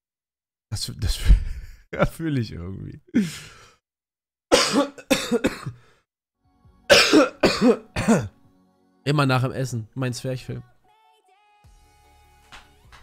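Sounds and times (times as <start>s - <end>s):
man laughing and coughing: 1.1s - 2.3s, 4.5s - 5.9s, 6.9s - 8.4s.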